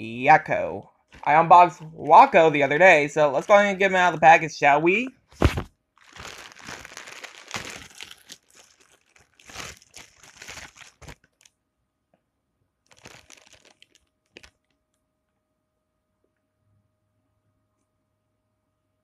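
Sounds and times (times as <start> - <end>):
plastic bag crinkling: 5.4 - 11.5, 12.8 - 14.8.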